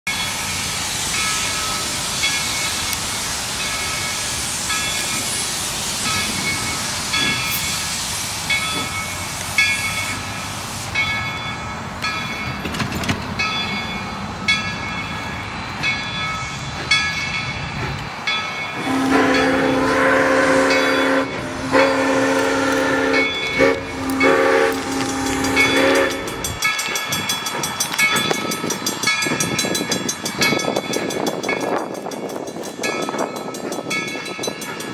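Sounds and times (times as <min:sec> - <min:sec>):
steam hiss: 0:00.1 - 0:12.6, 0:13.7 - 0:34.9
bell ringing: 0:13.4 - 0:17.6, 0:25.4 - 0:34.9
steam whistle chord: 0:18.8 - 0:26.6.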